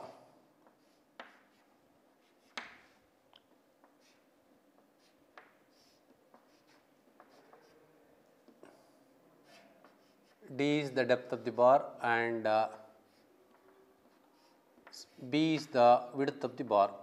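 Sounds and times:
chalk tapping on chalkboard: 0.6s - 7.8s, 13.1s - 15.8s.

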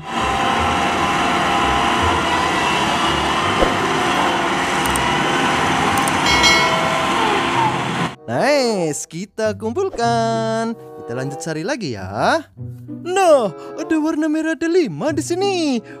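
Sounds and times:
road roller engine droning: 0.0s - 8.2s.

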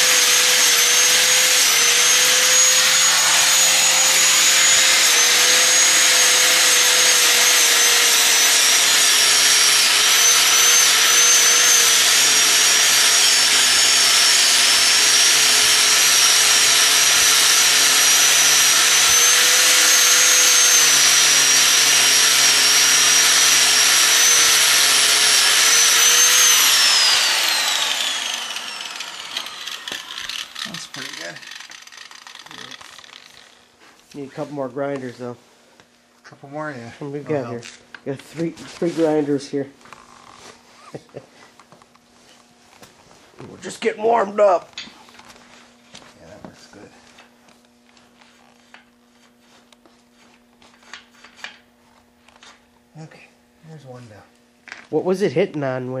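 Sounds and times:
angle grinder whining on metal: 0.0s - 33.7s.

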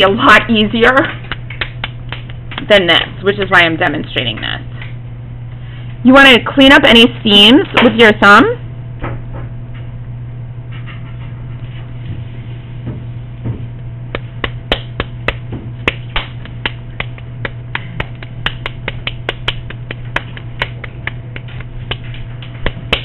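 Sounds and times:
hands slapping wet clay: 1.2s - 3.1s, 14.1s - 23.0s.

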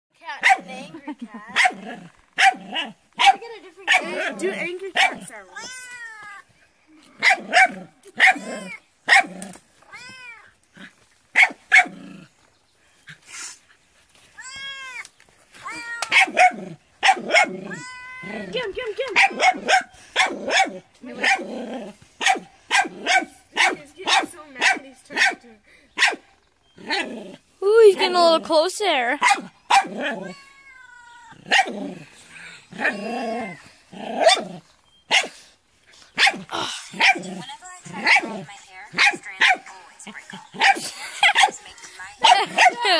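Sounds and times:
puppy barking: 0.4s - 0.8s, 1.5s - 1.8s, 2.4s - 4.3s, 5.0s - 5.3s, 7.2s - 9.4s, 11.4s - 11.9s, 16.1s - 17.8s, 19.1s - 21.5s, 22.2s - 25.4s, 26.0s - 26.2s, 29.2s - 30.3s, 31.5s - 31.8s, 34.2s - 34.5s, 35.1s - 35.4s, 36.2s - 36.4s, 37.0s - 37.3s, 37.9s - 39.7s, 40.4s - 41.6s, 42.2s - 42.9s.

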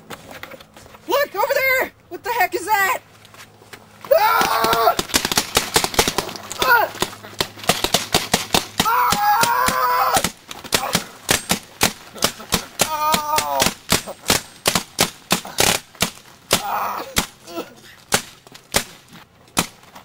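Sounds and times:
person shouting: 4.1s - 5.0s, 6.6s - 7.0s, 8.8s - 11.0s, 12.8s - 13.7s, 16.5s - 17.8s
paintball guns firing: 4.3s - 17.4s, 18.1s - 19.0s.

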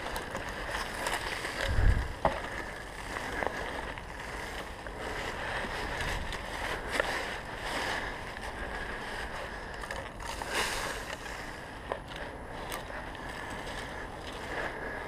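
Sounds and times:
footsteps crunching dry leaves: 0.0s - 11.8s.

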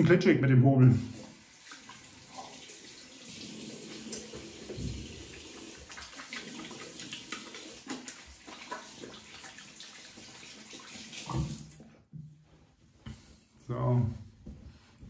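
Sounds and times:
tap water running into sink: 0.9s - 11.9s
hands splashing water: 3.9s - 11.8s.

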